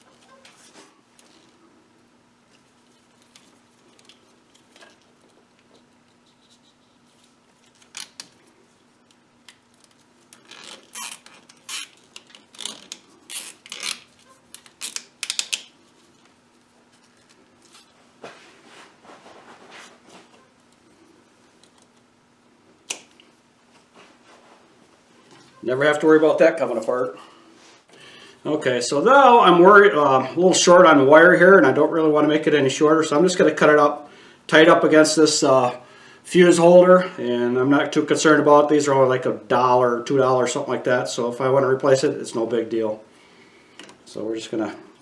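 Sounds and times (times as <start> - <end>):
faint steady hum: 0.0 - 45.0.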